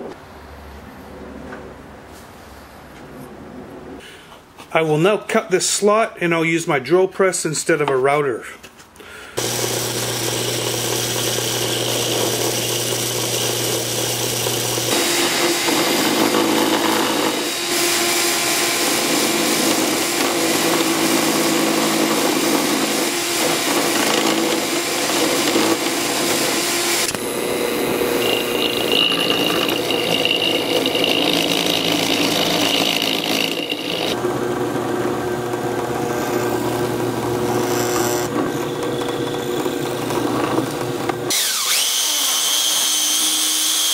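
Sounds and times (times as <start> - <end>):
drill bit rasping through wood: 9.4 - 43.9
drill press motor hum: 9.4 - 43.9.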